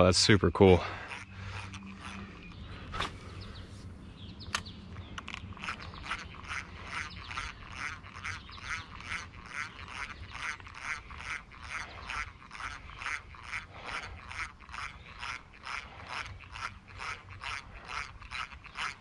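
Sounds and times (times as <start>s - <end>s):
fishing reel gears squeaking: 0.0s - 3.8s, 4.4s - 19.0s.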